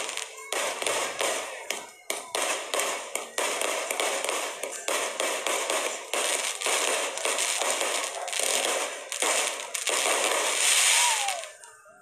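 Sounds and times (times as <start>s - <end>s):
fireworks shots crackling: 0.0s - 11.8s.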